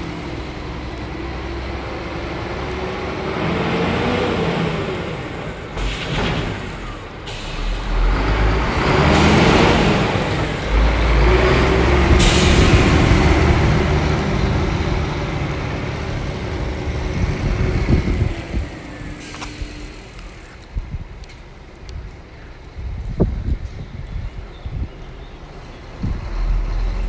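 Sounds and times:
diesel truck engine driving past: 0:00.0 - 0:20.5, 0:25.1 - 0:27.0
loud air hiss: 0:06.8 - 0:08.2, 0:12.1 - 0:13.0.

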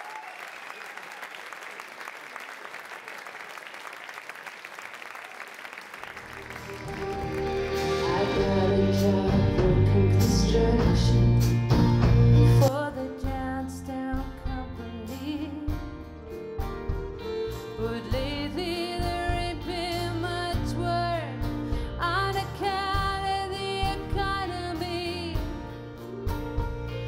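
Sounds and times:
audience applause: 0:00.0 - 0:08.8
live band playing: 0:06.1 - 0:27.0.

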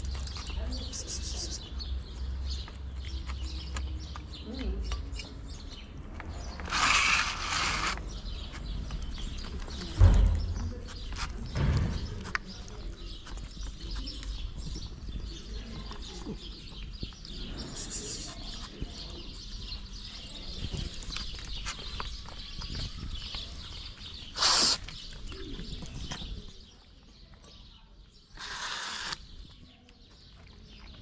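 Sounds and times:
cats eating wet food: 0:00.0 - 0:31.0
aerosol spray hissing: 0:24.4 - 0:24.8, 0:28.4 - 0:29.2.

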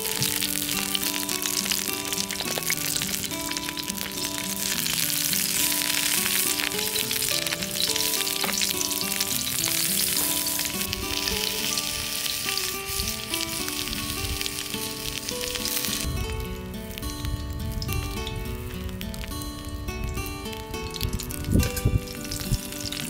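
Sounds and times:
sausages sizzling in a skillet: 0:00.0 - 0:23.0
soft background music: 0:00.0 - 0:23.0.

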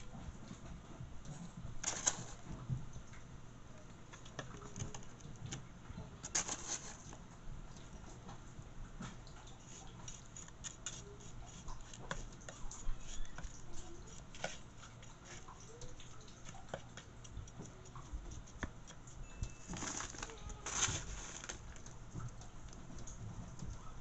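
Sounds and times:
metal spoon scraping crumbs in pan: 0:01.8 - 0:02.4, 0:06.2 - 0:07.2.

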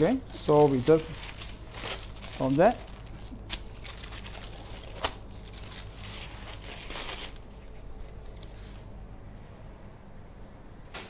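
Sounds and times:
baking paper rustling and crinkling: 0:00.0 - 0:08.9.

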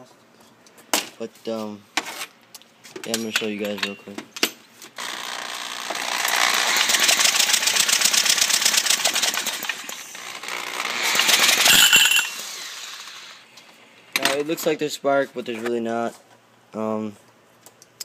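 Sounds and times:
small engine cranking clatter: 0:05.0 - 0:13.4.

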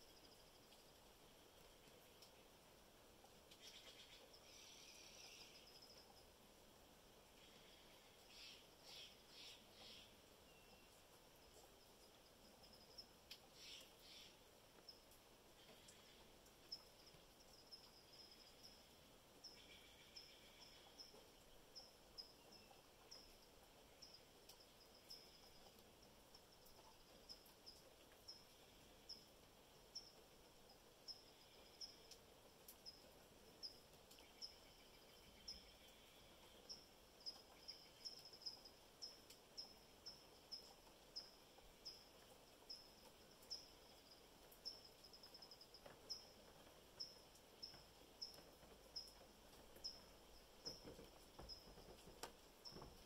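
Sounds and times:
background hiss: 0:00.0 - 0:53.0
small animal chirping: 0:13.6 - 0:14.3.

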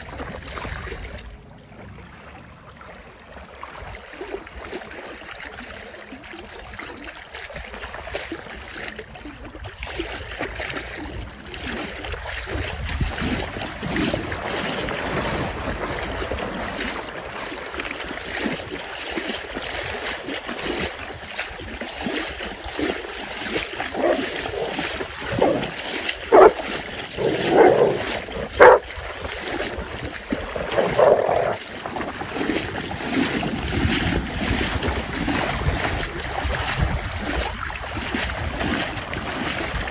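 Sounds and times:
water sloshing and splashing: 0:00.0 - 0:39.9
dog barking: 0:23.9 - 0:25.7, 0:26.3 - 0:26.6, 0:27.2 - 0:28.9, 0:30.7 - 0:31.6.

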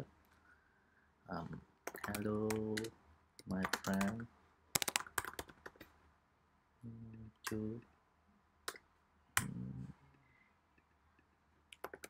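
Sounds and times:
keyboard typing: 0:01.8 - 0:04.2, 0:04.8 - 0:05.9, 0:11.8 - 0:12.0
person murmuring: 0:09.4 - 0:10.0.

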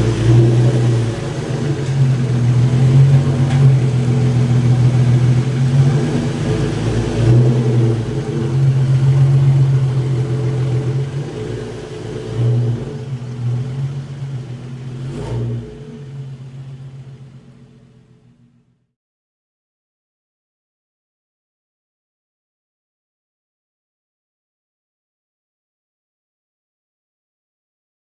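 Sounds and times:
car engine running: 0:00.0 - 0:18.9.

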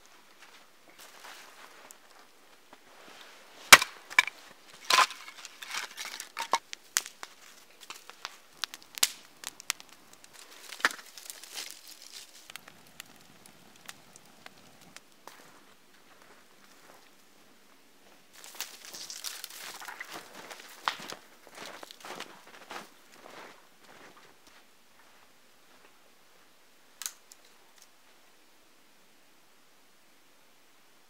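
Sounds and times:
soft low crunching: 0:00.0 - 0:26.0
sharp cracks and knocks: 0:03.7 - 0:13.1.

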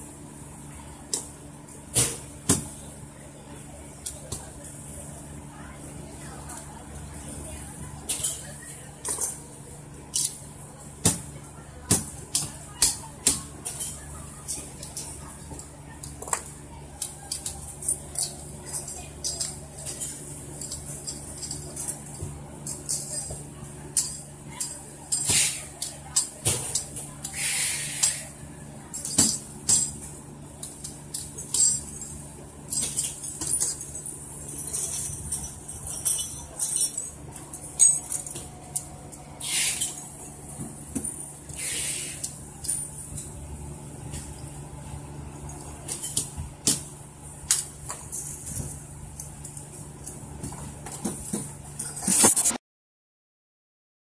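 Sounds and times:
low factory hum: 0:00.0 - 0:52.6
metal lock parts clinking: 0:08.1 - 0:10.4, 0:17.0 - 0:27.4, 0:28.9 - 0:43.3.

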